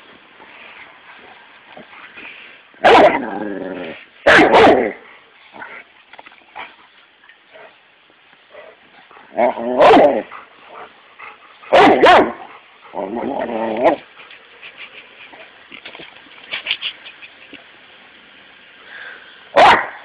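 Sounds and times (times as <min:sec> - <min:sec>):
dog barking: 0:02.8 - 0:03.2, 0:04.3 - 0:05.0, 0:09.8 - 0:10.2, 0:11.7 - 0:12.4, 0:19.6 - 0:20.0.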